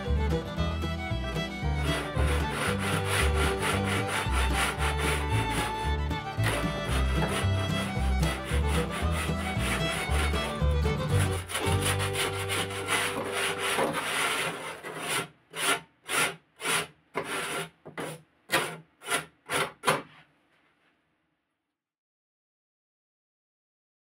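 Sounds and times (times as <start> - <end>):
sandpaper rubbing on wood: 1.8 - 5.8, 6.4 - 19.8.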